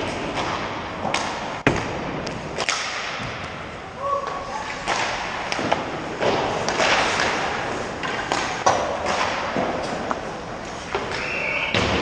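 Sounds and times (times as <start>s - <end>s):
sticks and pucks clacking: 0.0s - 11.9s
skates scraping across ice: 4.4s - 11.8s.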